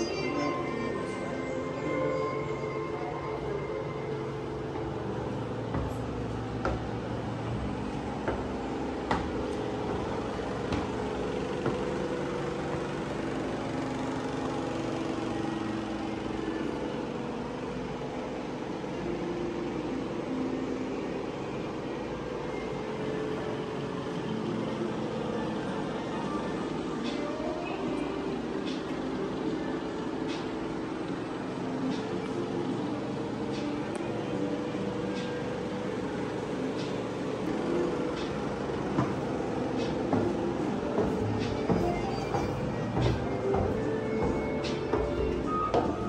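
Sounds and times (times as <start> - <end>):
steady background hum: 0.0 - 46.0
footsteps on stairs: 4.6 - 14.0, 37.4 - 46.0.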